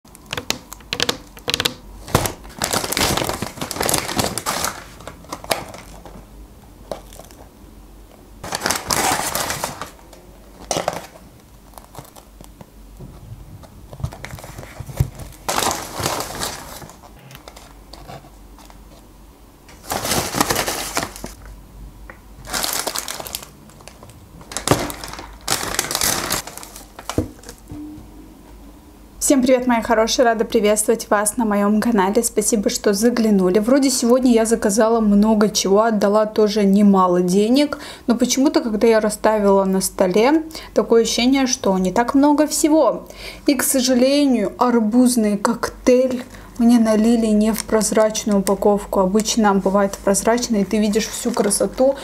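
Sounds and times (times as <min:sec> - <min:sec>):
paper bags rustling: 0:02.0 - 0:07.5, 0:08.4 - 0:12.6, 0:13.6 - 0:19.1, 0:19.7 - 0:21.5, 0:22.4 - 0:27.7, 0:47.0 - 0:52.0.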